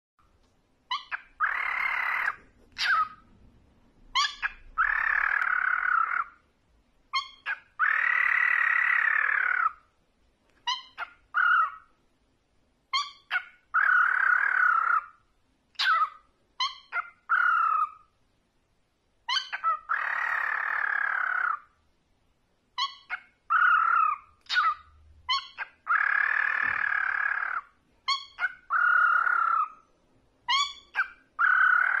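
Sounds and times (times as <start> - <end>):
cockatiel chirps and screeches: 0.9 - 3.3, 4.1 - 6.4, 7.1 - 9.8, 10.6 - 11.9, 12.9 - 18.0, 19.3 - 21.7, 22.8 - 29.8, 30.4 - 32.0.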